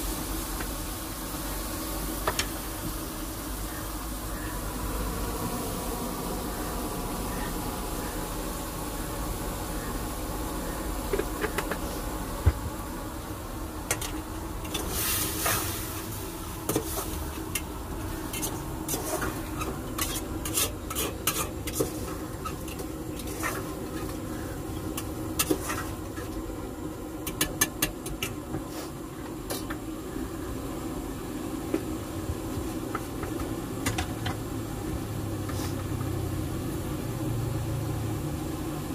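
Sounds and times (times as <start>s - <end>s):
steady hum: 0.0s - 38.9s
spoon scraping in cooking pot: 18.3s - 24.1s.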